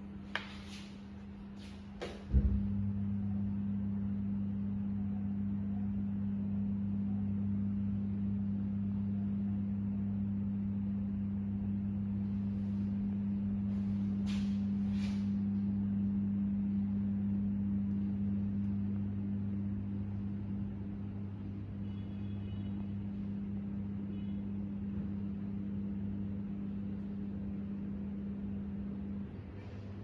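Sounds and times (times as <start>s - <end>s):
faint high whine: 16.4s - 30.0s.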